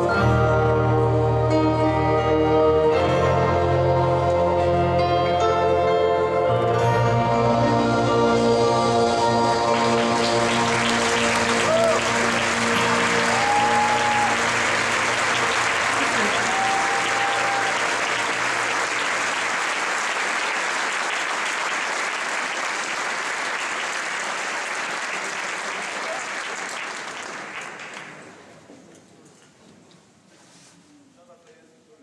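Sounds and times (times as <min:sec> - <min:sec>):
brass and percussion band chord: 0:00.0 - 0:19.3
audience applauding: 0:09.1 - 0:28.5.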